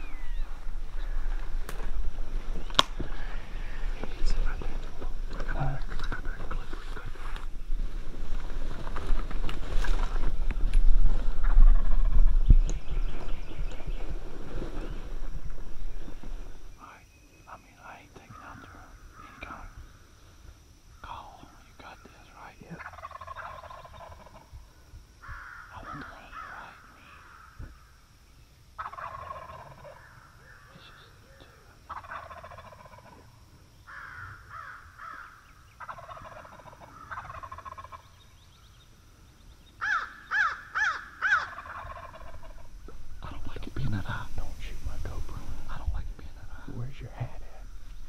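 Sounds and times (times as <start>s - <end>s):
turkeys gobbling: 22.8s - 24.5s, 28.8s - 33.3s, 34.0s - 38.2s, 39.8s - 43.1s
loud sharp turkey call notes: 39.8s - 42.7s.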